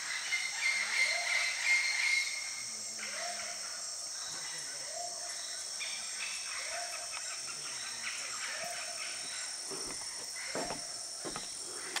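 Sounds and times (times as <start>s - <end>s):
insects chorus: 0.0s - 12.0s
knocks and bumps: 9.7s - 11.6s.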